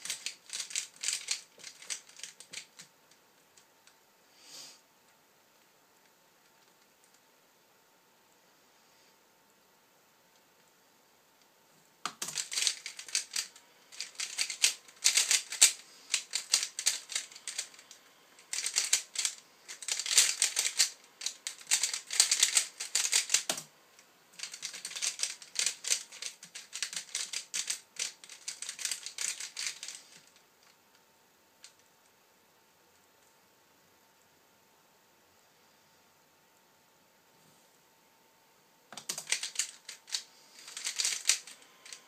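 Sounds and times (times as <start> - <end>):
puzzle cube clicking: 0.0 - 2.8, 12.0 - 23.6, 24.4 - 30.3, 38.9 - 42.0.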